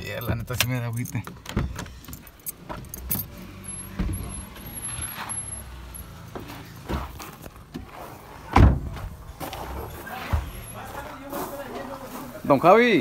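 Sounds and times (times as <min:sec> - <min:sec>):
knocks and shuffling: 0:00.0 - 0:13.0
car door shutting: 0:01.3 - 0:04.7.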